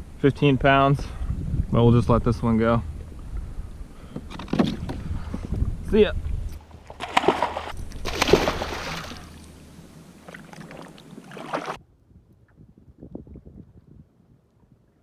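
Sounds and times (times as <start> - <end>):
faint water lapping: 6.5 - 11.8
water sloshing: 6.5 - 11.8
fish splashing into water: 6.9 - 9.5, 10.2 - 11.8.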